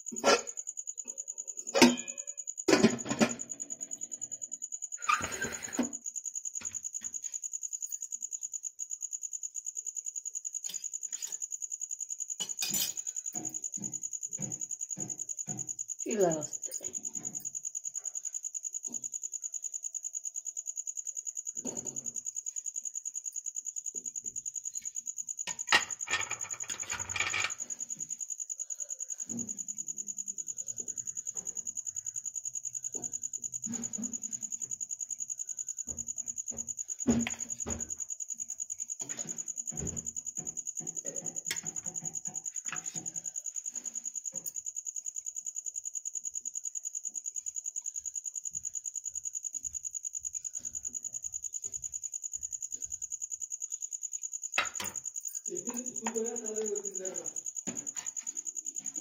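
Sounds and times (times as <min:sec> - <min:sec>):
metal plates clinking: 0:25.7 - 0:27.6
metal plates rattling: 0:25.7 - 0:27.6.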